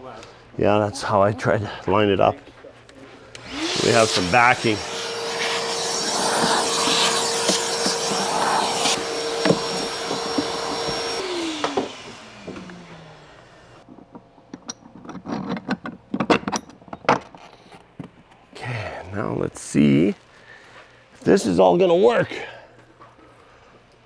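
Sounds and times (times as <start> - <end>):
shop vacuum running: 3.0 - 13.9
plastic parts clicking and knocking: 13.9 - 18.4.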